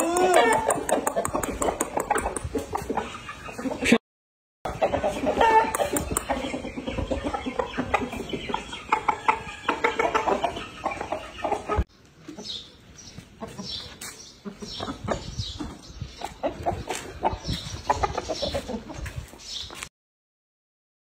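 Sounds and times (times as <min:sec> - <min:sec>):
roosters clucking: 0:00.0 - 0:04.0, 0:04.7 - 0:19.9.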